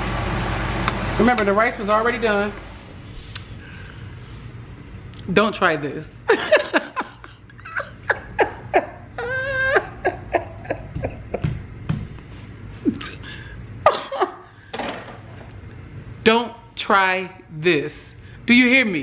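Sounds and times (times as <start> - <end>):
woman laughing hard: 6.3 - 11.6, 13.8 - 14.5.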